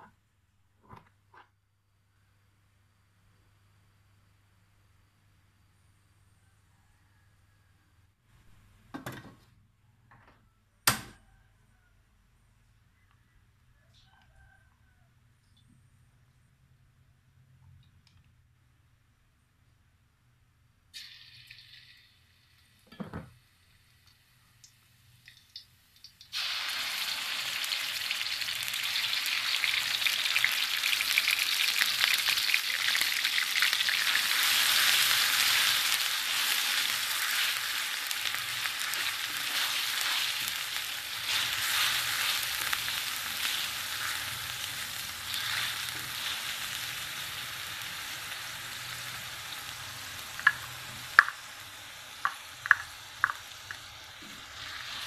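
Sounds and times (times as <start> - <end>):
garlic sizzling in hot oil: 21.0 - 55.0.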